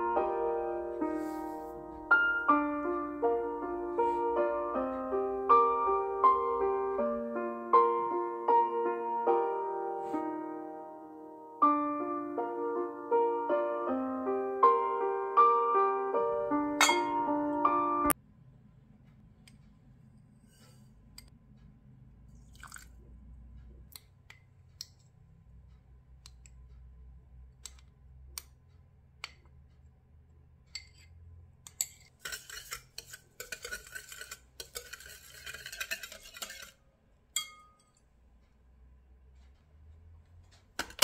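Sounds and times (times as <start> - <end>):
spoon clinking on glass: 16.8 - 17.3, 37.4 - 38.0
whisk beating in glass bowl: 32.1 - 36.8.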